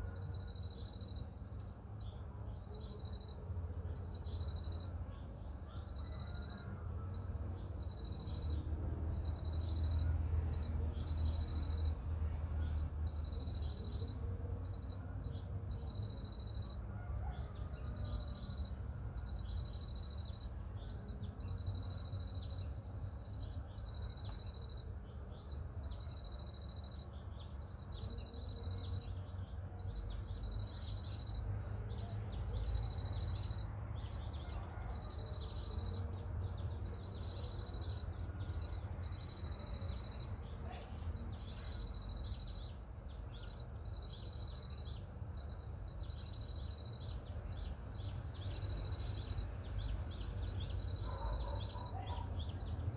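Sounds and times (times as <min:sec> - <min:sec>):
bird chirps: 0:36.9 - 0:52.9.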